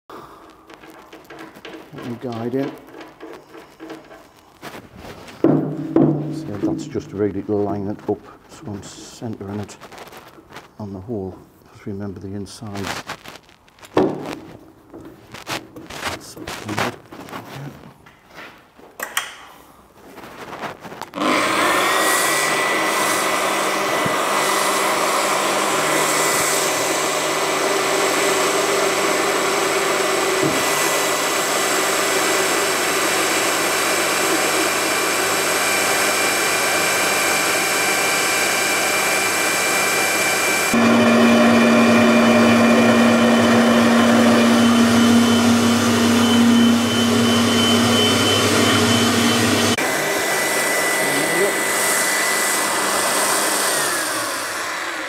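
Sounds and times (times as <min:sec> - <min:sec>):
drill motor cutting steel: 0:21.2 - 0:55.0.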